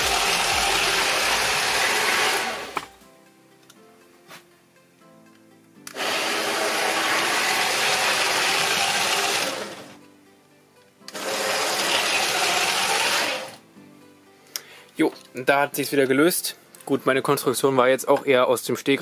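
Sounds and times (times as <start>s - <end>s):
toy train motor whirring: 0.0s - 2.8s, 5.9s - 10.0s, 11.1s - 13.6s.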